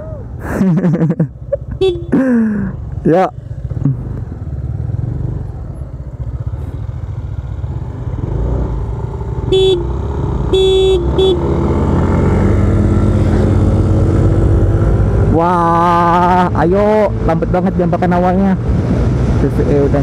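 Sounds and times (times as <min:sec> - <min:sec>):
scooter engine running: 0:01.4 - 0:12.5
scooter horn tooting: 0:01.7 - 0:02.2, 0:09.5 - 0:11.5.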